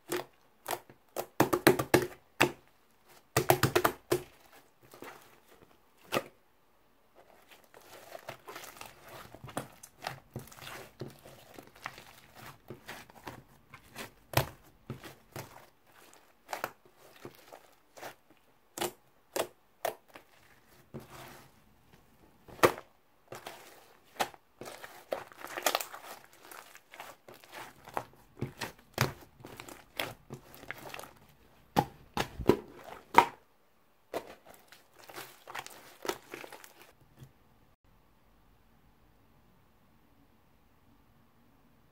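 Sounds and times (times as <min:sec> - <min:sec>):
slime crackling and tearing: 0:22.6 - 0:31.2.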